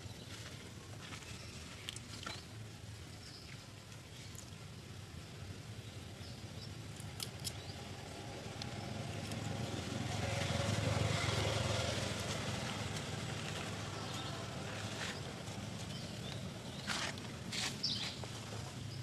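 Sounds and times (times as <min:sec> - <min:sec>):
passing vehicle engine: 0:08.2 - 0:16.1.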